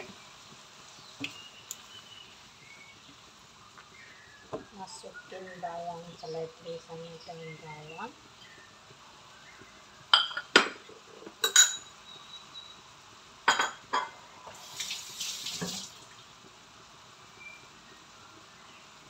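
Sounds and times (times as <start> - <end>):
dishes and utensils clinking: 10.2 - 11.9, 13.5 - 14.2
water running: 14.5 - 16.3.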